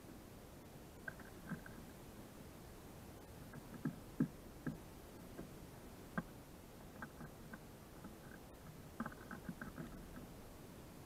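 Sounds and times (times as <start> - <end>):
faint hiss: 0.0 - 11.0
birds pecking on wood: 1.0 - 2.0, 3.4 - 10.3.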